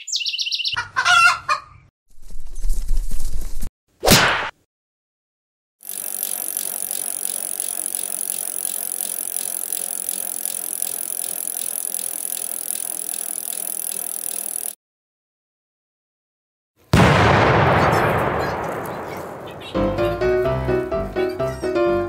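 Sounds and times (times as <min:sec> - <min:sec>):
ratchet-like clicking rattle: 0:05.8 - 0:14.8.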